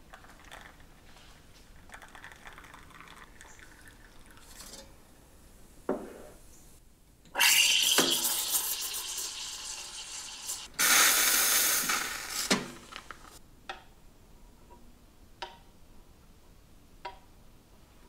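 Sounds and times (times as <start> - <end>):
steam wand hissing: 7.4 - 13.3.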